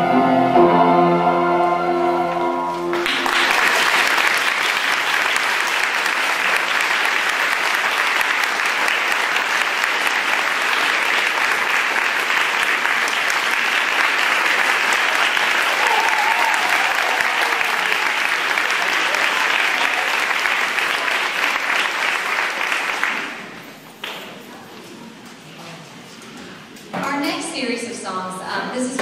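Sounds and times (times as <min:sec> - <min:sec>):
chorus singing held chord: 0:00.0 - 0:03.2
audience applauding: 0:02.7 - 0:24.4.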